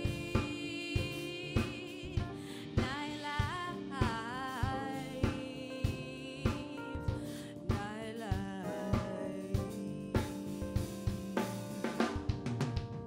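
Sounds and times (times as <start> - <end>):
woman singing: 0.0 - 11.5
drums keeping a steady beat: 0.0 - 13.0
live band playing: 8.9 - 13.0.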